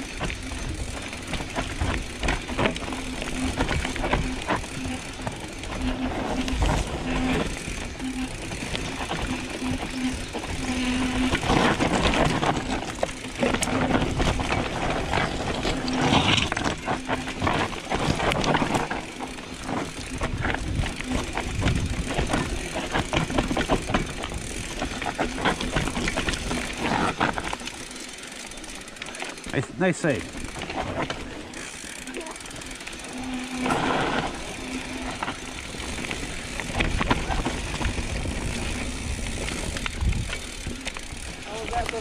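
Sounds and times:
bike rattling and knocking: 0.0 - 42.0
short buzzing tone: 3.3 - 11.7, 32.0 - 35.8.

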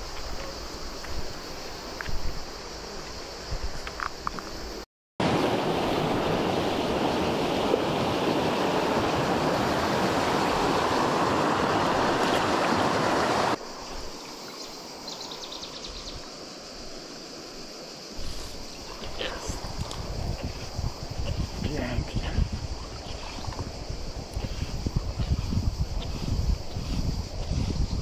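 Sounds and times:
quiet flowing water hiss: 0.0 - 28.0
rushing river roar: 5.2 - 14.1.

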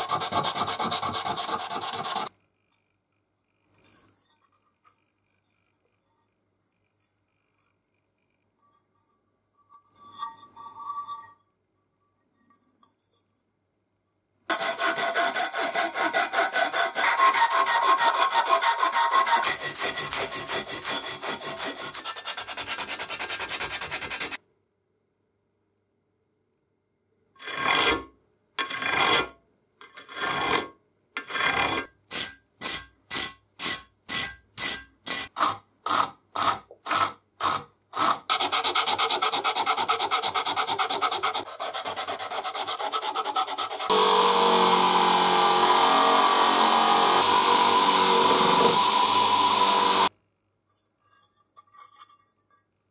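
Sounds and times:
filing metal: 0.0 - 2.3, 14.5 - 24.4, 32.1 - 50.1
sanding rubbing strokes: 0.0 - 2.3, 14.5 - 24.4, 38.1 - 50.1.

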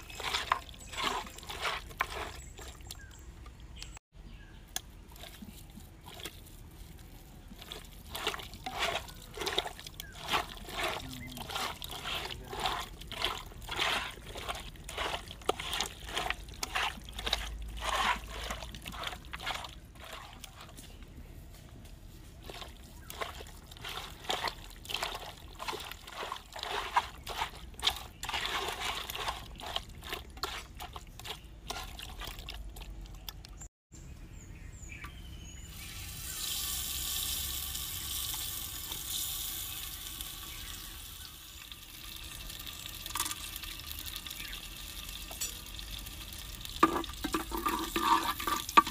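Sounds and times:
hands squelching wet meat: 0.0 - 4.0, 4.6 - 21.1, 22.4 - 33.7.

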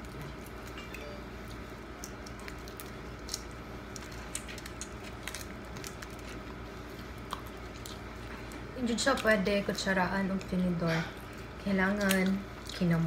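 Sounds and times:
steady low hum: 0.0 - 13.0
wet chewing: 0.0 - 13.0
shrimp shells crackling: 1.6 - 6.6.

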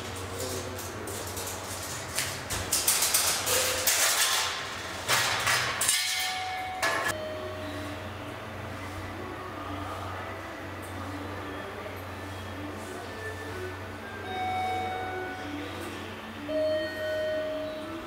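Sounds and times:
steady low hum: 6.2 - 18.0.

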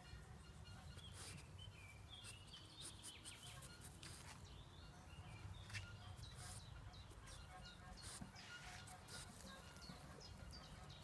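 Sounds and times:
small birds chirping: 0.0 - 11.0
rustling and crackling in clover: 7.3 - 10.5.

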